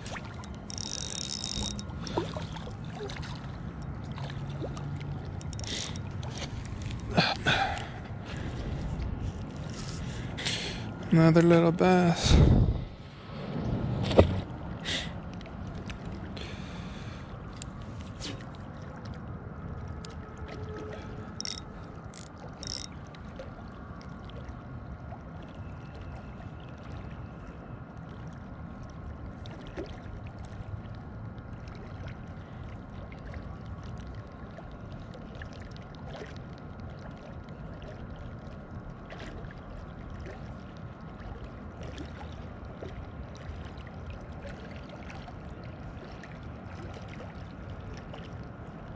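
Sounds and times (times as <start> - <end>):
fishing reel gears whining: 0.0 - 2.2, 5.4 - 6.0, 21.3 - 22.9
outdoor background noise: 0.0 - 48.9.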